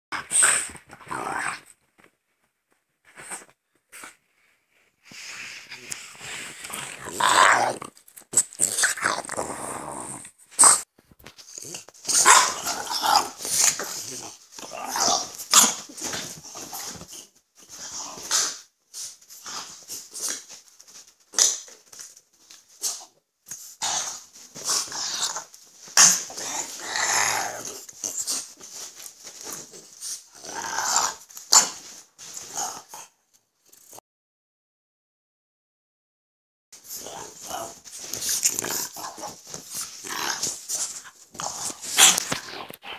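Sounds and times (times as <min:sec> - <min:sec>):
dogs growling: 0:05.7 - 0:18.7, 0:23.8 - 0:33.2, 0:36.8 - 0:42.9.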